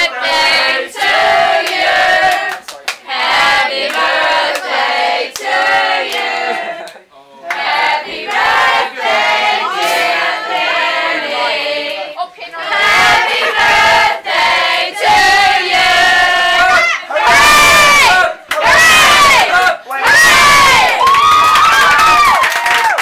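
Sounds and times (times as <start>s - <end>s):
young people singing together: 0.0s - 19.7s
sharp hand claps: 1.6s - 3.0s, 20.9s - 23.0s.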